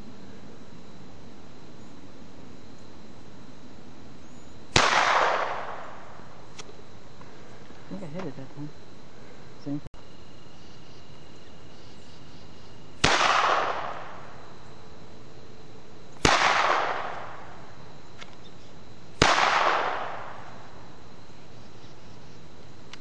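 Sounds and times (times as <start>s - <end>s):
pistol shots with echo: 4.7s - 6.0s, 13.0s - 14.2s, 16.2s - 17.4s, 19.2s - 20.5s.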